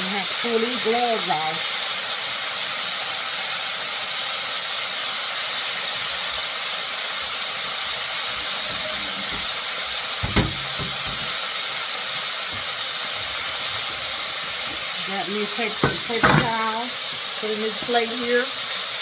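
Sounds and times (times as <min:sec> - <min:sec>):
oil sizzling while deep-frying: 0:00.0 - 0:19.0
short thump: 0:10.2 - 0:11.3
person speaking: 0:15.0 - 0:18.5.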